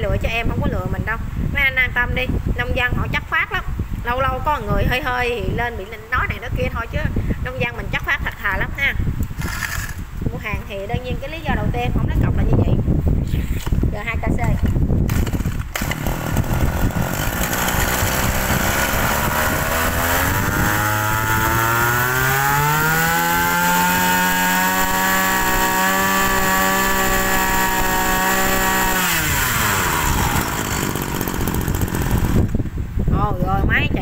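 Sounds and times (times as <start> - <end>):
brush cutter engine revving: 9.2 - 10.0, 14.6 - 32.6.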